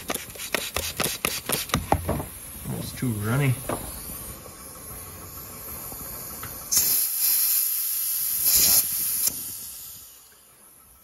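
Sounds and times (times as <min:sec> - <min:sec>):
compressed air hissing: 0:00.0 - 0:11.0.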